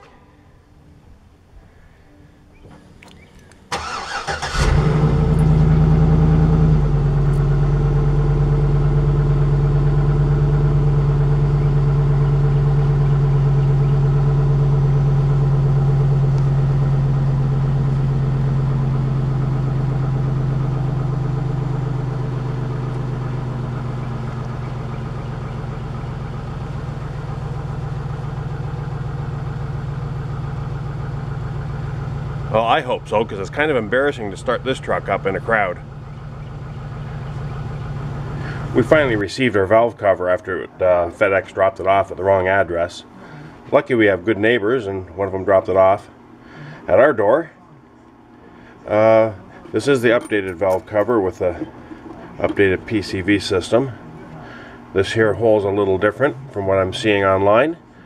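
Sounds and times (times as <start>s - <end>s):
car engine idling: 2.4s - 47.1s, 47.8s - 58.0s
engine cranking and starting: 2.7s - 29.3s.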